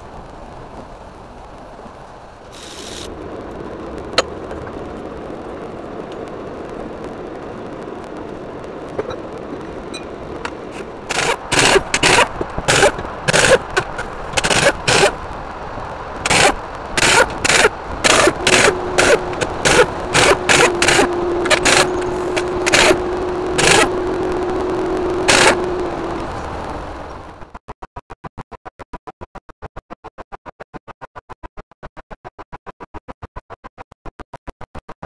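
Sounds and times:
steady hum: 0.0 - 27.5
impact wrench bursts: 11.1 - 15.2, 16.2 - 23.0, 23.6 - 23.9, 25.3 - 25.6.

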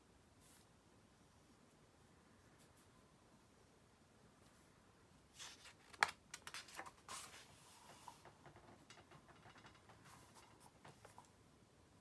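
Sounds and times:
pages turning: 5.3 - 8.3.

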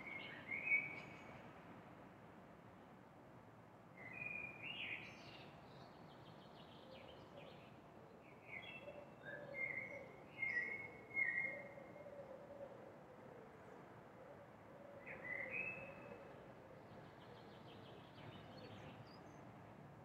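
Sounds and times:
songbird chirping: 0.0 - 1.4, 4.0 - 12.1, 15.0 - 19.6.

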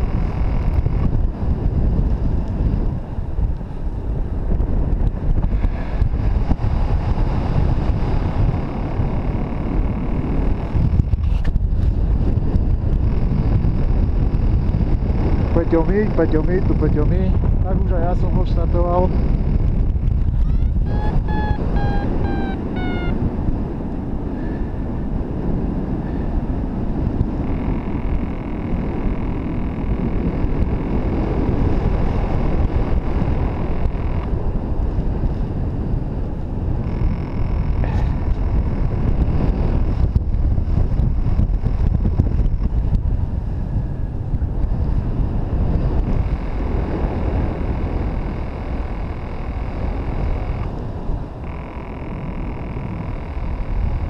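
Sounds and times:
wind buffeting microphone: 0.0 - 54.0
electronic beeps falling in pitch: 20.5 - 23.2.

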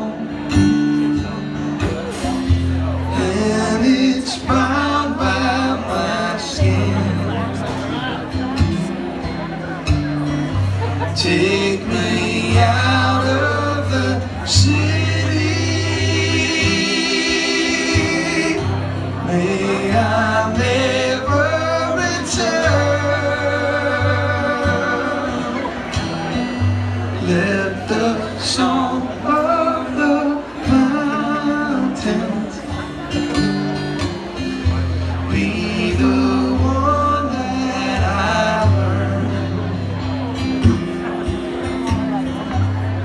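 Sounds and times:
drums: 0.0 - 3.5
strummed acoustic guitar: 0.0 - 43.0
men singing: 3.0 - 8.1, 11.1 - 25.8, 27.2 - 32.6, 35.3 - 39.8.

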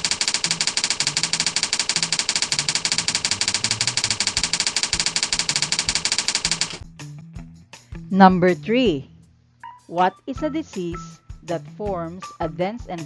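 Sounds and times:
rapid typewriter clicking: 0.0 - 6.8.

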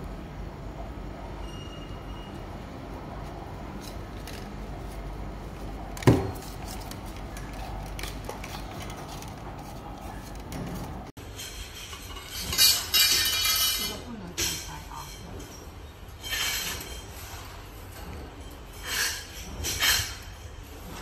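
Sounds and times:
metal tubes clicking and scraping: 6.5 - 21.0.

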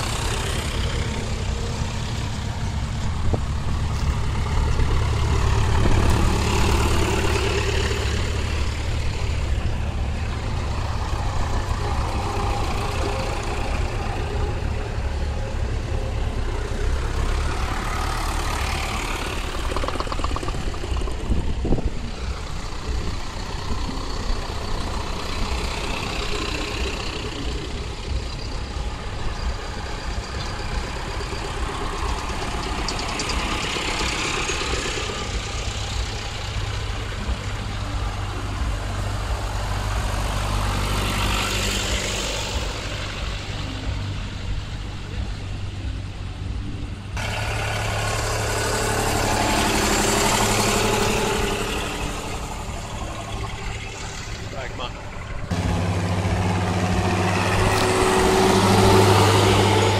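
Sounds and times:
diesel tractors droning past: 0.0 - 59.9.

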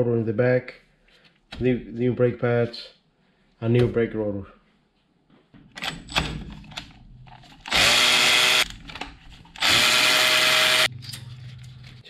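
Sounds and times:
electric ratchet spinning: 7.6 - 8.7, 9.6 - 10.9.

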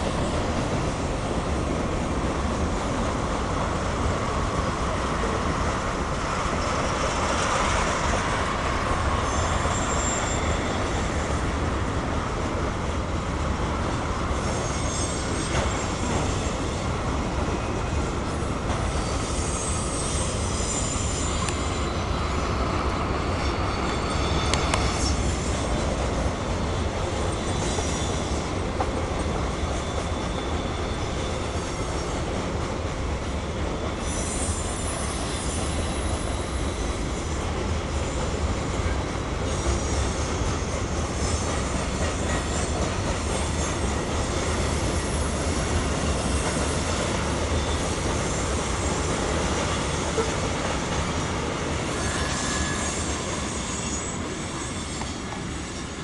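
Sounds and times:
freight train wheels rumbling on rail: 0.0 - 56.0
train clanks: 0.0 - 56.0
high wheel squeal: 6.6 - 11.4, 14.4 - 16.9, 18.4 - 25.9, 26.7 - 28.5, 29.5 - 32.1, 33.8 - 38.4, 39.4 - 51.2, 51.8 - 56.0.

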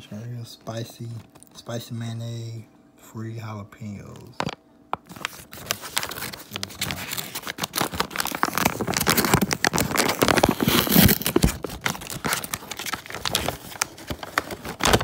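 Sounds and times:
paper bag crinkling and tearing: 5.0 - 15.0.

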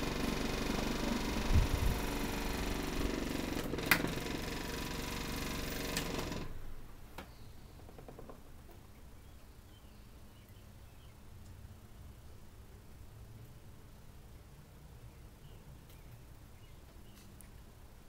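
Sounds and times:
desk fan motor hum and blade whoosh: 0.0 - 6.6.

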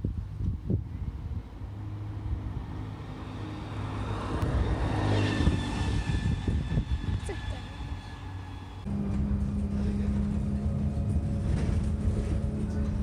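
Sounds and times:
high whining tone: 2.9 - 12.9
bus diesel engine running: 6.9 - 13.0.

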